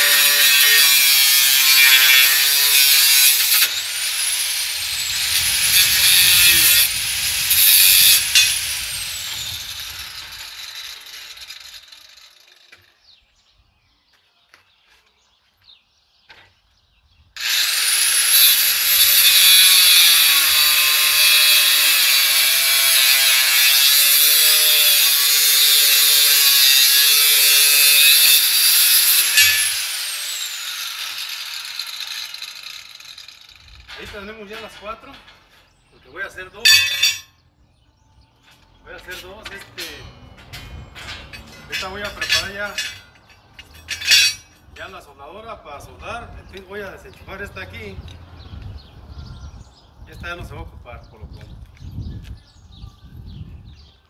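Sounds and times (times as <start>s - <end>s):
angle grinder cutting metal: 0.0s - 12.9s, 17.4s - 34.2s, 36.7s - 37.3s, 39.0s - 44.5s.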